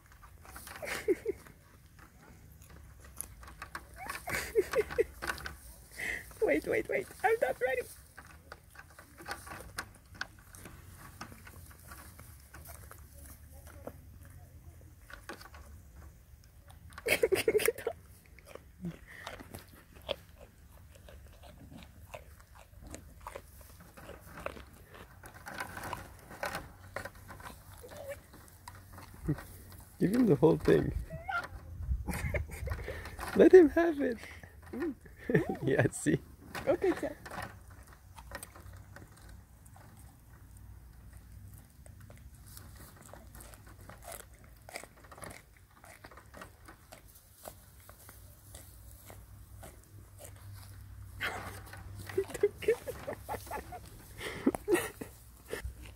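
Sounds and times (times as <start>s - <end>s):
goat crunching carrot: 0.0s - 55.9s.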